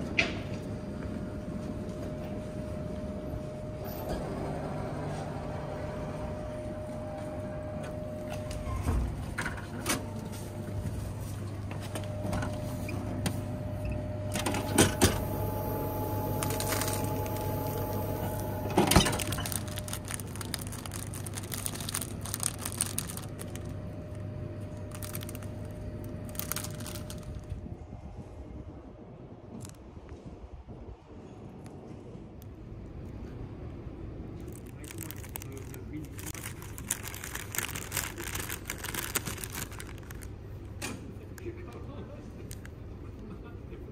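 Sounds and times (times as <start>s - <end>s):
vending machine hum: 0.0s - 29.4s, 32.0s - 43.9s
motor whine: 12.0s - 20.4s.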